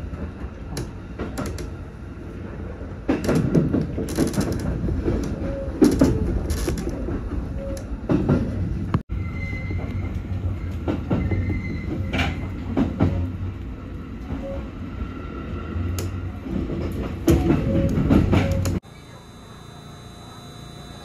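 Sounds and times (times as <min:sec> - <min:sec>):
wheels clacking over rail joints: 0:00.0 - 0:09.0, 0:09.6 - 0:14.8, 0:15.7 - 0:18.8
train running rumble: 0:00.0 - 0:20.1.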